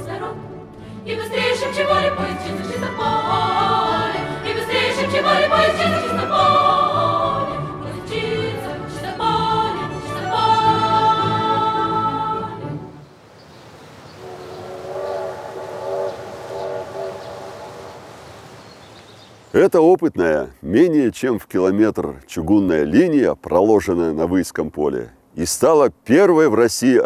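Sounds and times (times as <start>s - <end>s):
choral singing: 0.0s - 13.0s.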